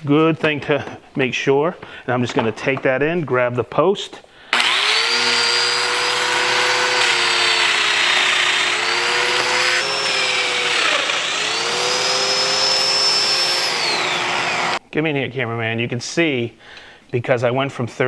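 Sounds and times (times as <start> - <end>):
power tool motor whine: 4.6 - 14.8.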